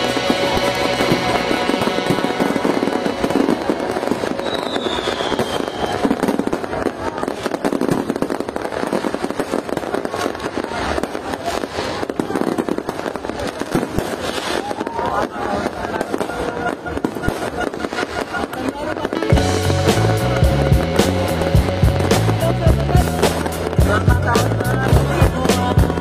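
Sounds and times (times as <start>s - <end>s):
fireworks crackling and popping: 0.0s - 26.0s
faint firework whistle: 1.8s - 7.9s, 14.1s - 19.2s.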